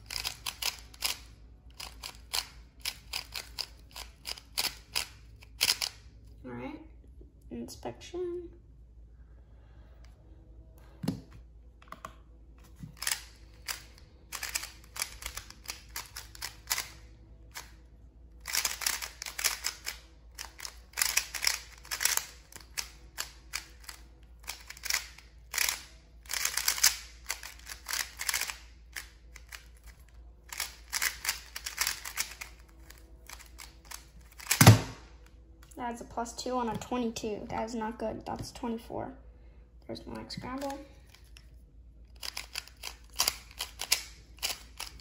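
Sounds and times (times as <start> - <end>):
speed cube layers clicking: 0.0 - 6.0, 13.0 - 17.7, 18.4 - 34.7, 42.2 - 45.0.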